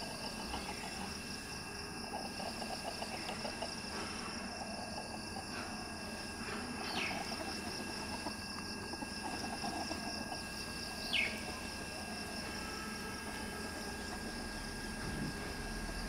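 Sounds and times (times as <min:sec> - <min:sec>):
chickens clucking softly: 0:00.0 - 0:01.4, 0:02.0 - 0:12.1
high insect hum: 0:00.0 - 0:16.0.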